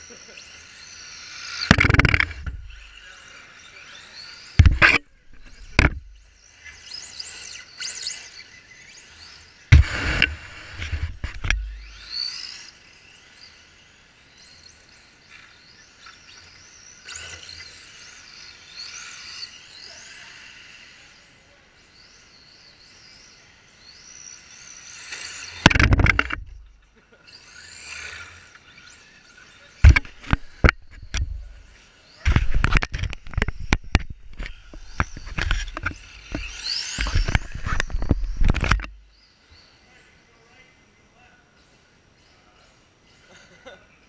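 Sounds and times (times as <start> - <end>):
rc car motors whining: 0.0 - 39.4
sharp clicks: 1.7 - 2.9, 25.6 - 26.6, 32.3 - 39.0.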